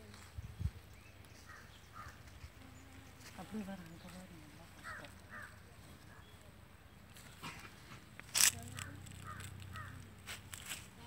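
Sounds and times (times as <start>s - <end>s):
bird calls: 0.6s - 4.2s, 4.8s - 7.7s, 8.5s - 10.1s.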